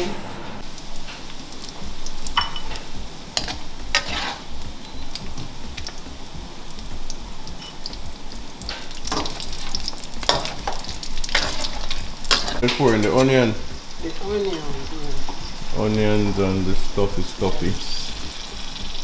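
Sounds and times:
meat sizzling in oil: 0.6s - 19.0s
metal spatula scraping pan: 3.4s - 4.5s.

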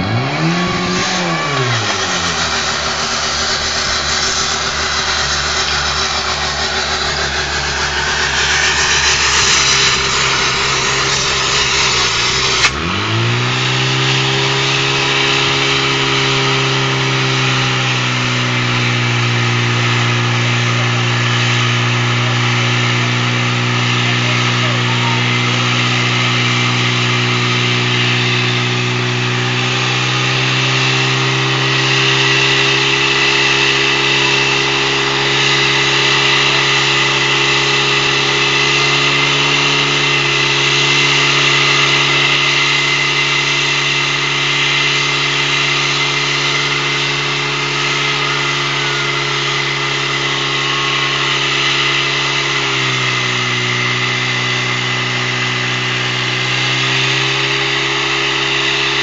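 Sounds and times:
fire pump engine running hard: 0.0s - 59.0s.

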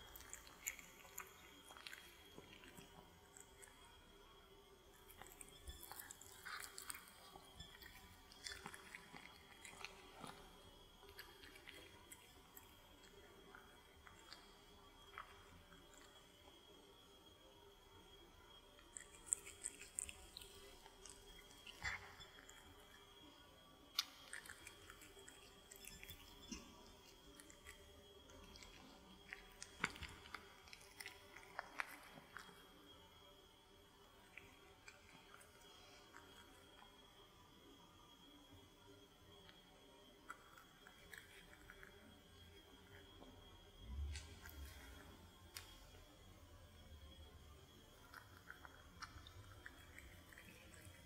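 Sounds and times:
cat chewing: 0.0s - 17.1s, 18.8s - 32.9s, 34.1s - 37.0s, 40.2s - 46.0s, 47.2s - 51.0s
cat biting food: 24.0s - 26.7s.

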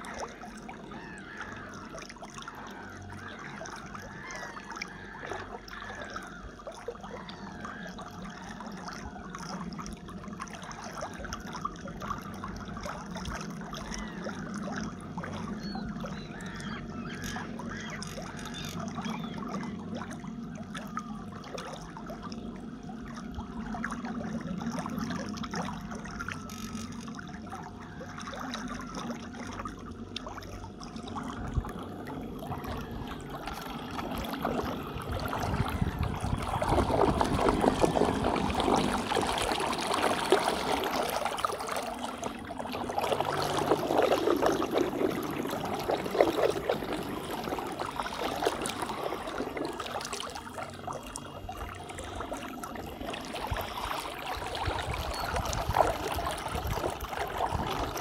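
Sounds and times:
water churning and gurgling: 0.0s - 58.0s.

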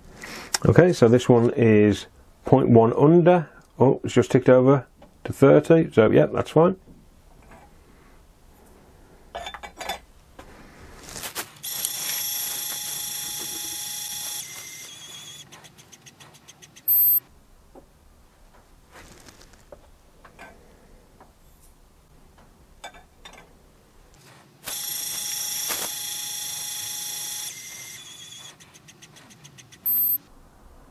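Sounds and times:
loud high beep: 16.9s - 17.2s, 29.8s - 30.2s.

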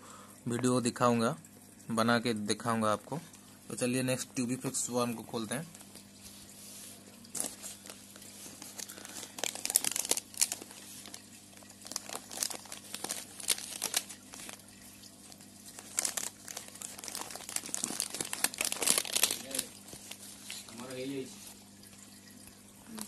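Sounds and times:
newspaper crinkling and rustling: 5.6s - 21.6s.

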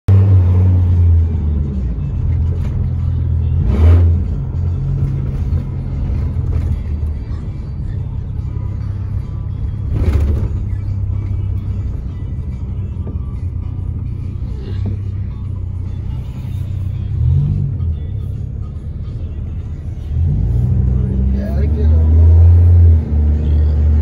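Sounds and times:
truck engine and road drone: 0.1s - 24.0s.

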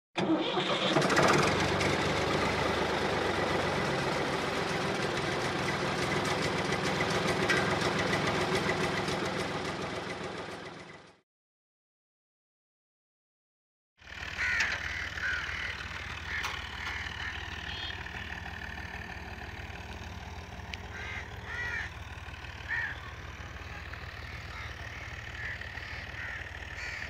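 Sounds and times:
tractor engine running: 0.2s - 11.2s, 14.0s - 27.0s.

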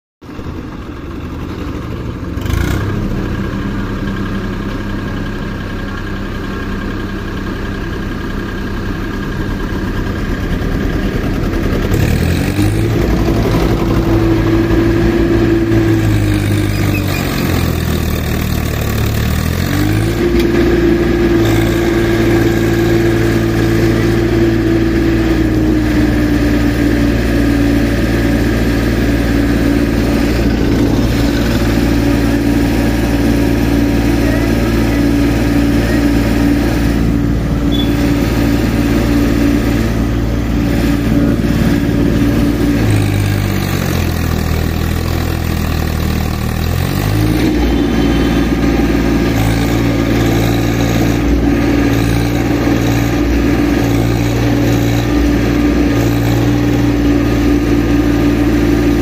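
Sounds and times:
engine knock: 0.2s - 23.4s
tractor diesel engine revving: 0.2s - 59.0s.

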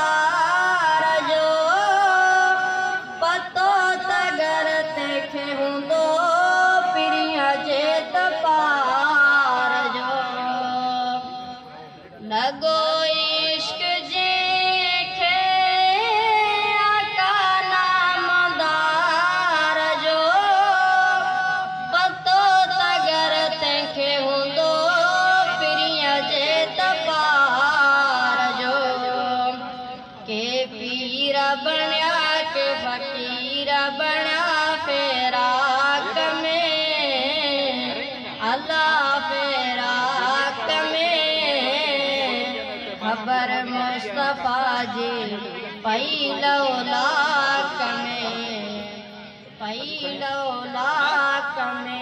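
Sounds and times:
person singing devotional melody: 0.0s - 52.0s.

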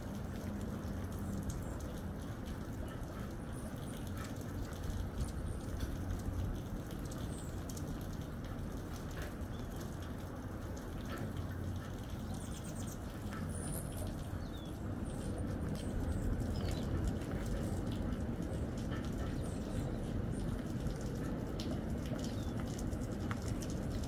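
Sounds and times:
rain patter: 0.0s - 24.0s
hummingbirds chirping: 12.1s - 17.3s.

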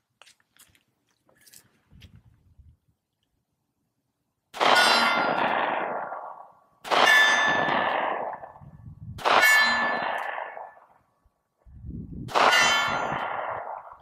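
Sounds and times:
pistol shots: 4.5s - 8.6s, 9.2s - 10.9s, 12.3s - 14.0s
steel target clanging: 9.3s - 10.4s.

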